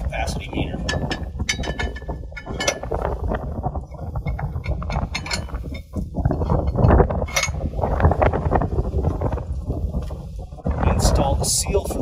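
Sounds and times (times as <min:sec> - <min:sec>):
low rumble: 0:00.0 - 0:12.0
metallic clicks and scraping: 0:00.8 - 0:03.1, 0:03.8 - 0:07.7.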